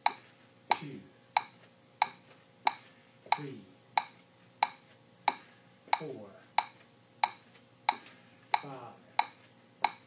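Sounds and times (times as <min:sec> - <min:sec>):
metronome clicking: 0:08.6 - 0:10.0.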